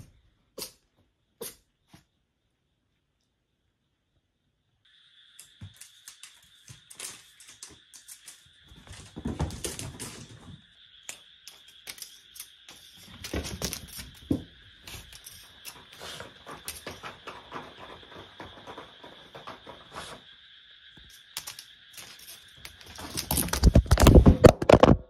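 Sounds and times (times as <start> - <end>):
toy flap scraping on floor: 11.1 - 20.3, 21.0 - 25.0.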